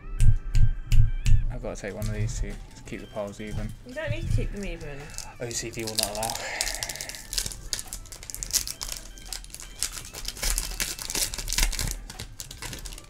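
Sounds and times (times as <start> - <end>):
foil wrapper crinkling: 1.8 - 13.0
foil pack torn open: 4.9 - 13.0.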